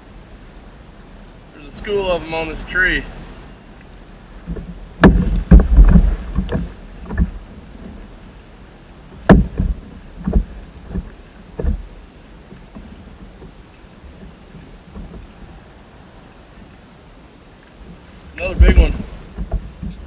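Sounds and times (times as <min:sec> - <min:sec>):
knocks against plastic kayak hull: 0:04.4 - 0:08.0, 0:09.1 - 0:11.9, 0:17.9 - 0:20.0.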